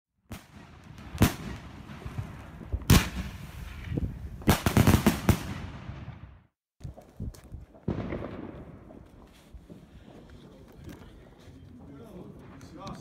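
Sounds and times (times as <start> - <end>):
fireworks bangs: 0.3 - 7.1, 7.7 - 10.7.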